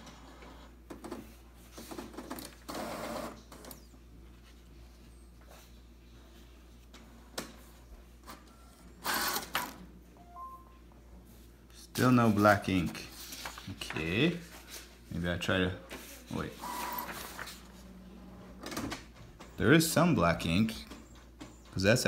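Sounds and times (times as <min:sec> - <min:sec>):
printer mechanism whirring: 0:08.2 - 0:09.8, 0:16.5 - 0:17.7.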